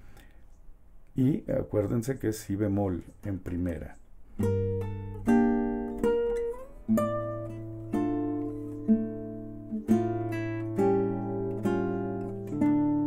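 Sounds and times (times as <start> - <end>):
classical guitar played slowly: 4.3 - 13.0.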